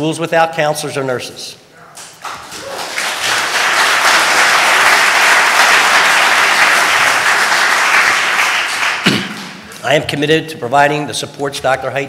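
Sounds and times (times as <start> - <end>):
crowd applauding: 2.0 - 9.9.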